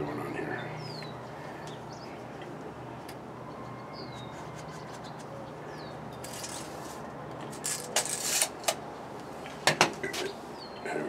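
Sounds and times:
steady background hum: 0.0s - 11.0s
rustling and scraping of handling: 4.0s - 10.5s.

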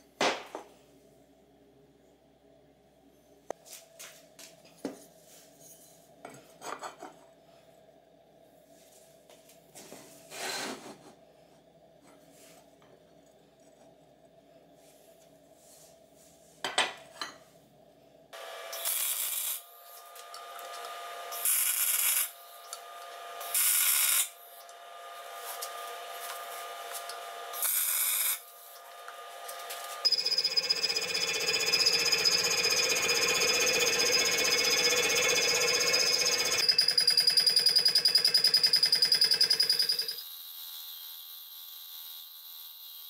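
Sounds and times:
welder humming: 18.4s - 36.7s
welding crackling hiss: 18.7s - 20.2s, 21.4s - 22.4s, 23.4s - 24.4s, 26.2s - 28.7s
milling machine chattering: 30.0s - 40.2s.

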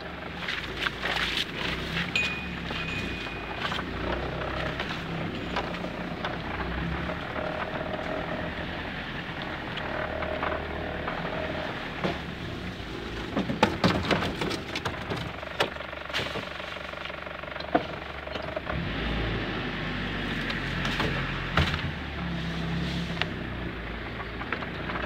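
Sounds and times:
diesel engine running: 0.0s - 25.0s
vehicle body knocks and rattles: 11.1s - 18.7s, 20.6s - 22.2s.

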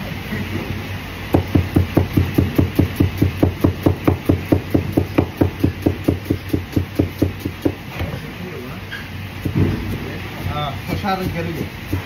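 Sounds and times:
cleaver chopping on cutting board: 1.3s - 7.8s, 11.6s - 12.0s.

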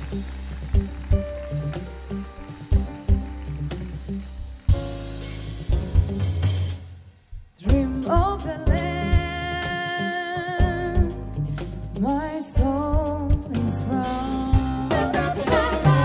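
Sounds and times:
live band playing: 0.0s - 7.0s, 7.6s - 16.0s
women singing: 12.3s - 16.0s.

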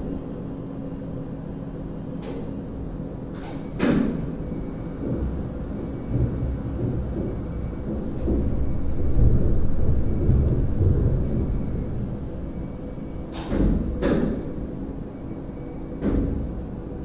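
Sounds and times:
car lift machinery humming: 3.6s - 17.0s.

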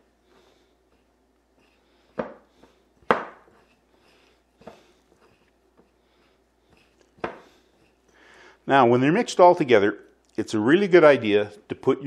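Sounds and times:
fingers stirring gritty salt: 0.0s - 8.5s.

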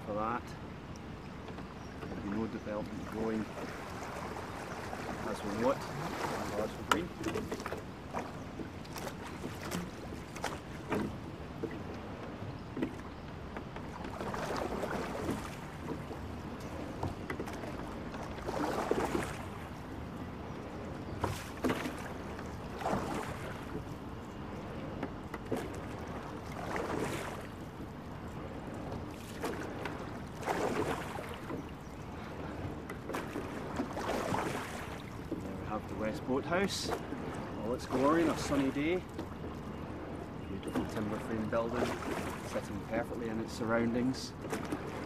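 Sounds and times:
oars splashing through water: 0.0s - 45.0s
water wash: 2.1s - 8.3s, 33.2s - 39.0s.

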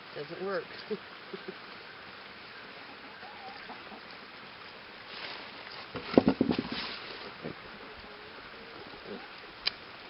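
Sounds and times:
guinea fowl calling: 2.5s - 4.2s.

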